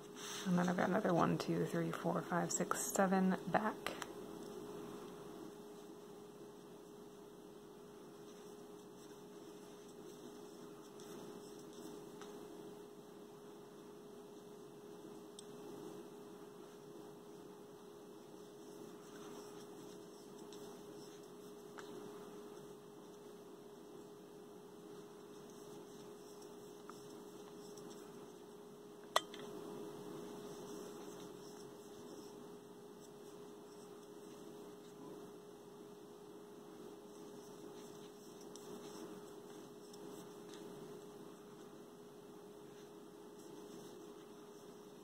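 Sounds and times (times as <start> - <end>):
steady electrical hum: 0.0 - 45.0
yarn rustling: 36.8 - 45.0.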